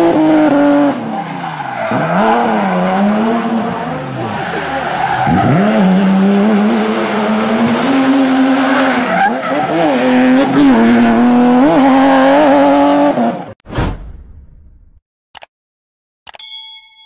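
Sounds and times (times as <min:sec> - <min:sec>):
car engine revving high: 0:01.9 - 0:13.5.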